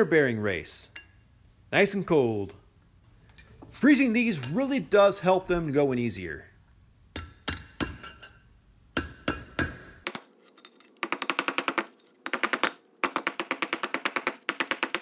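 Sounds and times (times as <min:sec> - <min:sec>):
hammer tapping on metal: 0:07.1 - 0:08.3, 0:09.0 - 0:10.2.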